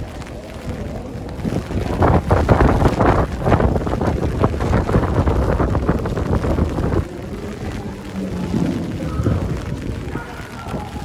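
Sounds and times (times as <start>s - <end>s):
rain on an umbrella: 0.0s - 11.0s
wind rumbling on microphone: 0.0s - 11.0s.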